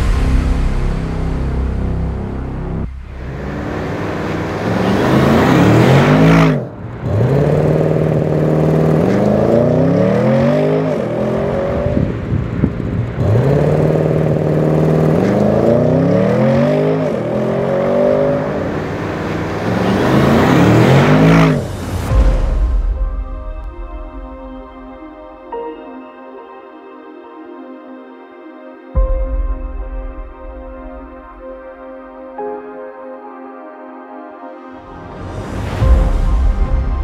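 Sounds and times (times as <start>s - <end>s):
car engine accelerating hard: 0.0s - 22.6s.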